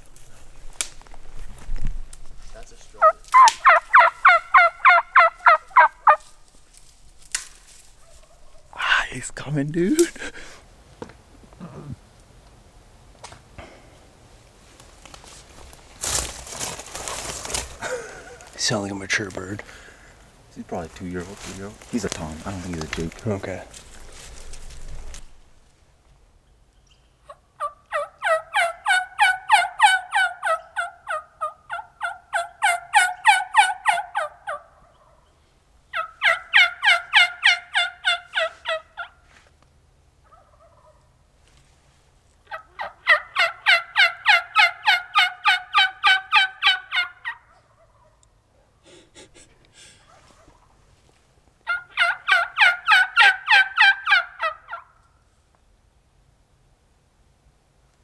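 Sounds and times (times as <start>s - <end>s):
turkey call raspy yelps: 3.0s - 6.3s, 27.2s - 35.3s, 35.9s - 39.2s, 40.2s - 41.1s, 42.5s - 48.2s, 51.6s - 55.0s.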